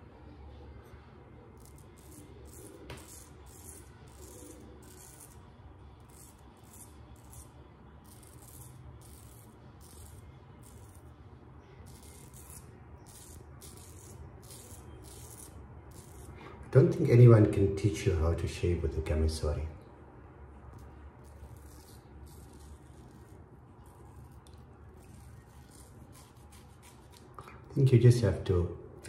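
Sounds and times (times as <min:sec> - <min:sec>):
straight razor scraping stubble: 0:01.6 - 0:16.4, 0:20.7 - 0:27.4.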